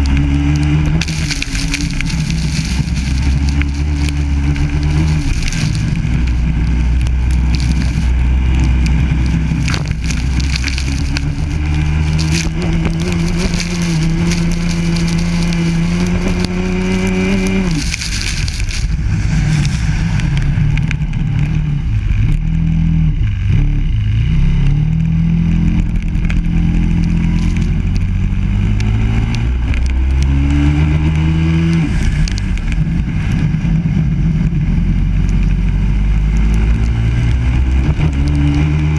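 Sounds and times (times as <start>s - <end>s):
kart engine revving: 0.0s - 22.0s.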